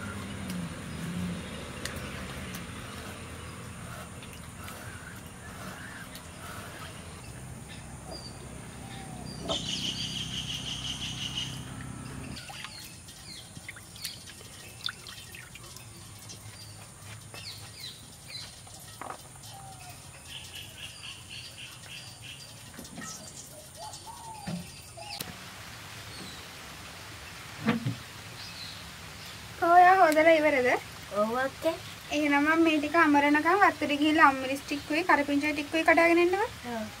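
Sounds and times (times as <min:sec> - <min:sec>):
birds chirping and calling: 0:00.0 - 0:25.3.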